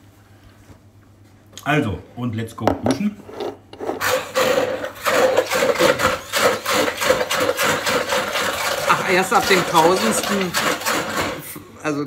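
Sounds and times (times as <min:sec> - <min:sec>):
blender grinding food: 0:03.8 - 0:11.6
stick blender motor: 0:04.0 - 0:11.5.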